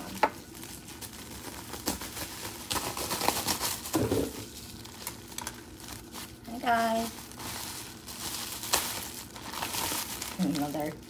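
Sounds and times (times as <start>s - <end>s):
foil packaging crinkling: 0.0s - 11.0s.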